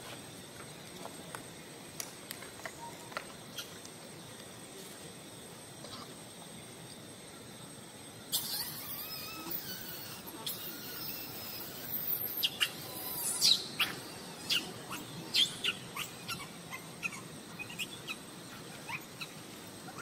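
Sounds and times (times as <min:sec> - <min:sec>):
steady outdoor hiss: 0:00.0 - 0:20.0
high chirping calls: 0:08.3 - 0:20.0.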